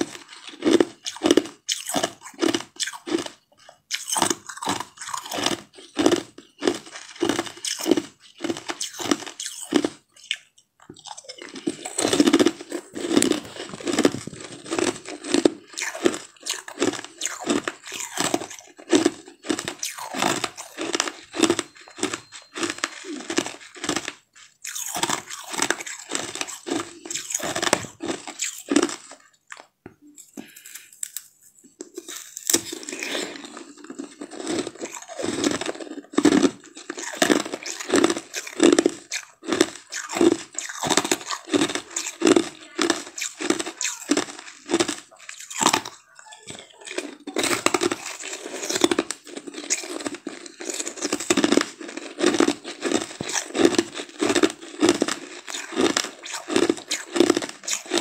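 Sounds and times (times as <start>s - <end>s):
chewing icy crunches: 0.0s - 58.0s.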